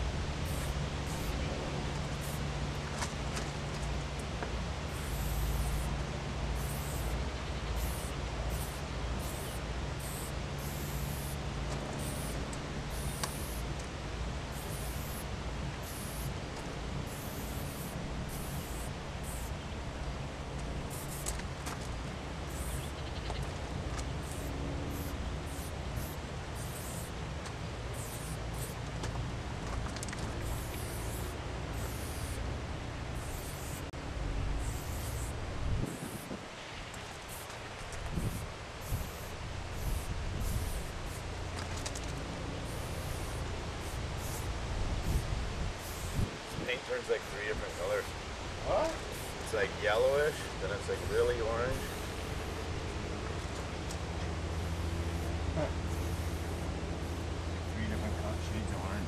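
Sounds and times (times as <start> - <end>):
low outdoor rumble: 0.0 - 59.0
spray paint can hissing: 0.4 - 1.4, 2.2 - 2.4, 4.9 - 5.9, 6.6 - 7.2, 7.8 - 13.7, 14.5 - 16.4, 17.0 - 19.6, 20.9 - 21.4, 22.5 - 22.9, 24.2 - 27.2, 27.9 - 28.8, 30.4 - 32.4, 33.2 - 33.9, 34.6 - 36.4, 37.2 - 37.5, 38.1 - 46.6, 49.1 - 49.6, 55.9 - 57.2
wind buffeting microphone: 35.3 - 37.1, 37.8 - 41.5, 44.5 - 46.9.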